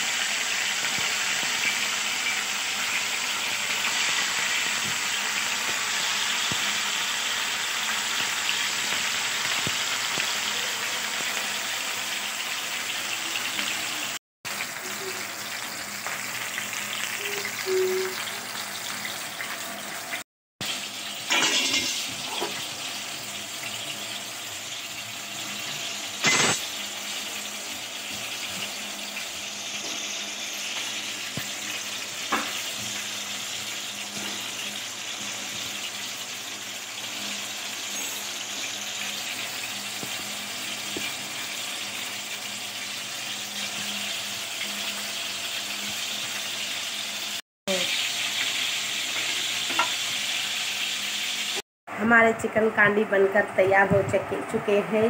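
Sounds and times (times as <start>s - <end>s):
food sizzling on grill pan: 0.0s - 51.6s.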